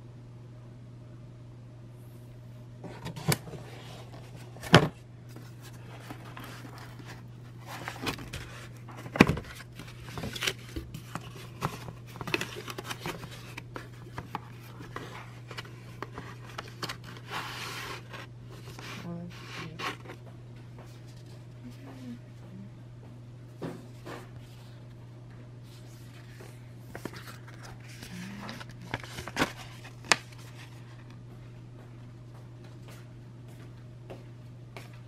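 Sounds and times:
steady low hum: 0.0s - 35.0s
cardboard scraping and rustling: 2.8s - 20.2s, 25.7s - 31.0s.

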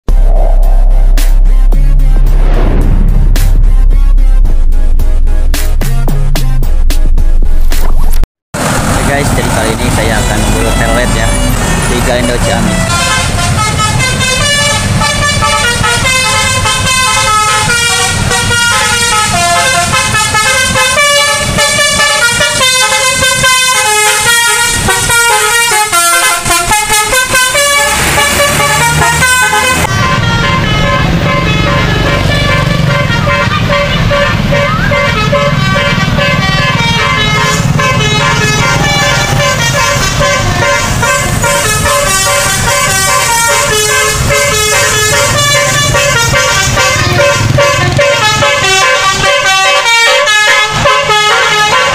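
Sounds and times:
bus engine: 0.0s - 51.9s
traffic noise: 0.1s - 5.5s, 6.1s - 51.9s
multi-tone musical bus horns: 8.6s - 51.9s.

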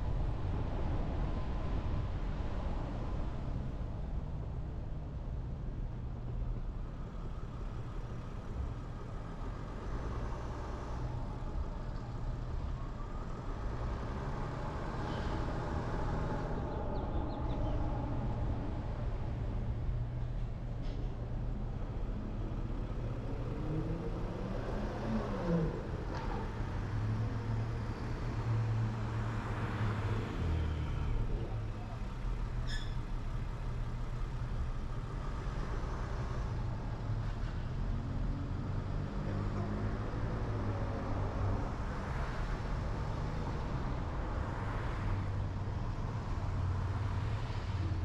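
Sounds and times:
car engine and road rumble: 0.0s - 48.0s
brief high squeak: 32.6s - 33.1s.

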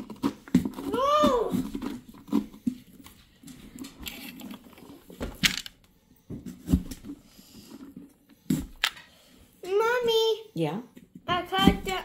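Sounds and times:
hand scraping inside pumpkin: 0.0s - 5.1s.

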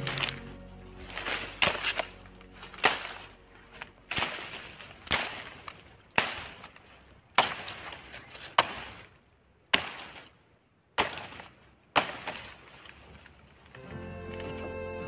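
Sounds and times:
machete chopping palm fronds: 2.8s - 3.2s, 4.1s - 6.8s, 7.4s - 9.1s, 9.7s - 10.2s, 11.0s - 12.9s.

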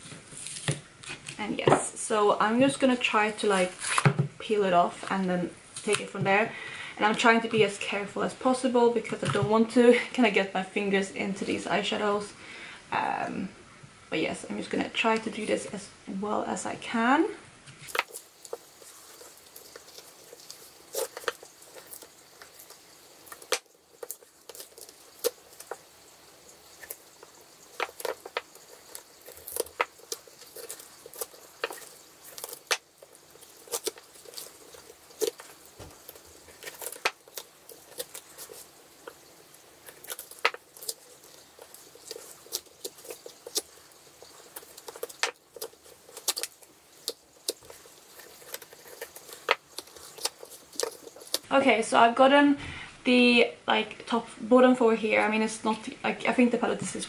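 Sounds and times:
cardboard scratching and ripping: 17.9s - 51.5s.

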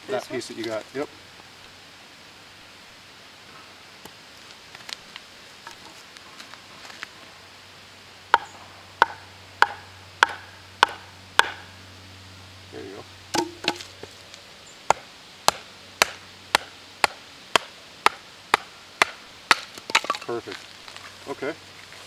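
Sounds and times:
hatchet chopping on wooden post: 8.3s - 11.6s, 13.3s - 13.9s, 14.9s - 20.2s
wooden baton knocking on hatchet: 9.0s - 11.6s, 13.4s - 13.9s.

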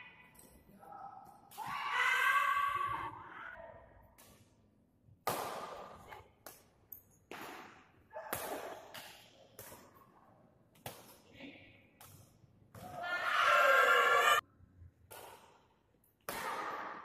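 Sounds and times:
rackets hitting shuttlecock: 5.2s - 10.1s, 10.7s - 11.3s, 15.1s - 17.0s.

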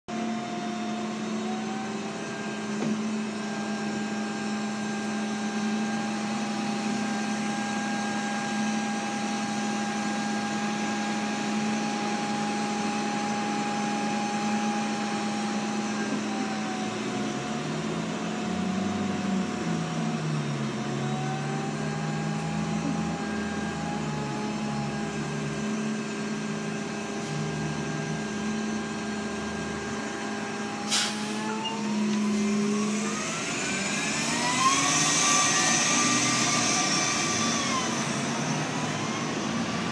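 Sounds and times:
bus electric machinery humming: 0.1s - 39.9s
level electric whines: 0.7s - 39.9s
low wavering drone: 18.5s - 39.9s.

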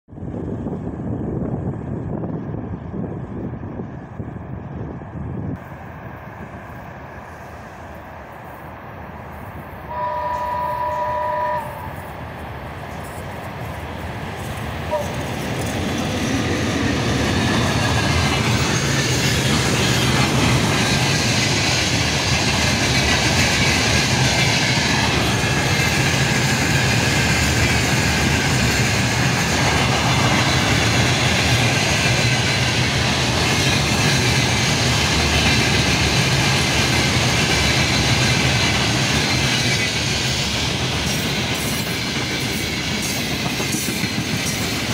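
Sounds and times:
freight train rumbling past: 0.1s - 44.9s
locomotive horn blast: 9.8s - 12.0s, 14.9s - 15.2s.

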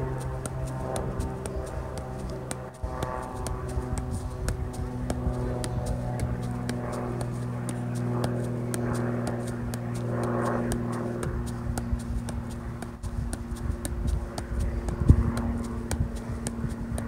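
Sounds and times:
steady low hum: 0.0s - 17.0s
ball taps off a foot: 0.2s - 17.0s.

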